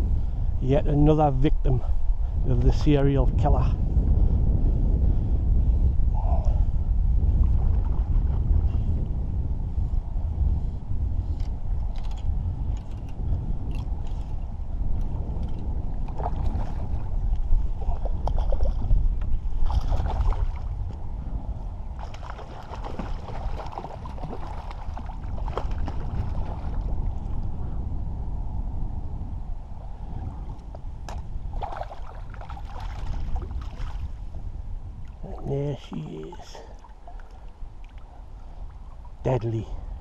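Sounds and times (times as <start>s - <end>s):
wind buffeting microphone: 0.0s - 40.0s
water lapping at bank: 15.9s - 21.0s, 21.9s - 27.4s, 30.5s - 34.4s, 35.0s - 39.2s.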